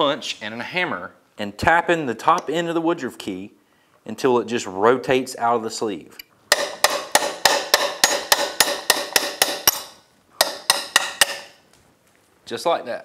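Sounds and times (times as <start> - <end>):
hammer tapping steel punch: 6.5 - 11.6.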